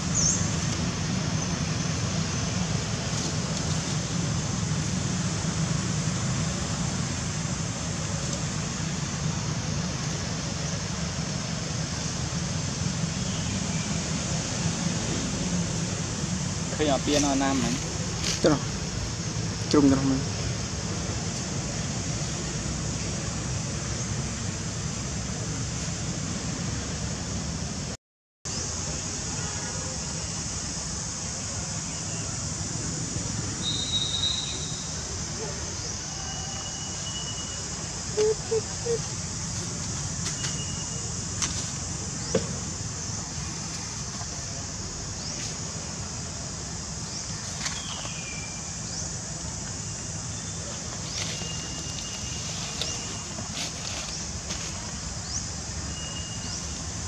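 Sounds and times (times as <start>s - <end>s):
steady rushing background noise: 0.0s - 28.0s, 34.6s - 57.0s
high-pitched insect drone: 28.5s - 57.0s
thin whistle-like calls: 33.6s - 35.0s, 36.1s - 39.1s, 55.9s - 56.8s.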